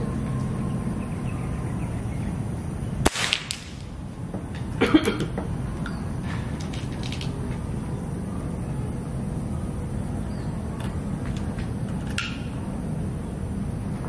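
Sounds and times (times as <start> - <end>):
air rifle shot: 3.0 - 3.9.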